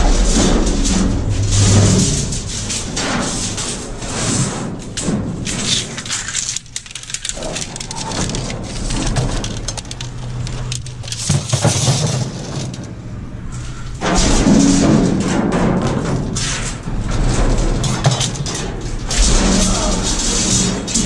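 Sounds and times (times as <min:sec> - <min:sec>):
cardboard and trash rustling: 0:00.0 - 0:13.0
metal bars clattering and scraping: 0:00.0 - 0:13.0, 0:13.6 - 0:21.0.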